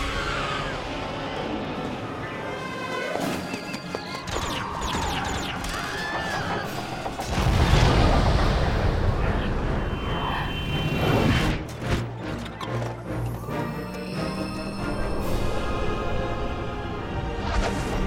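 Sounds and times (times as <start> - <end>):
music: 0.0 - 18.0
crackling hits: 7.1 - 9.7.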